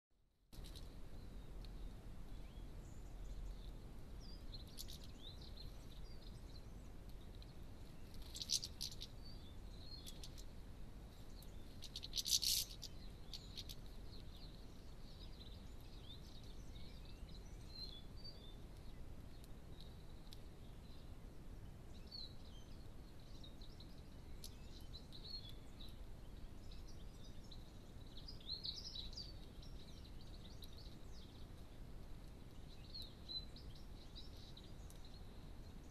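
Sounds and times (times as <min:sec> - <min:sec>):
finches twittering: 0:00.6 - 0:06.9, 0:07.8 - 0:10.5, 0:11.2 - 0:18.9
low background rumble: 0:00.6 - 0:35.9.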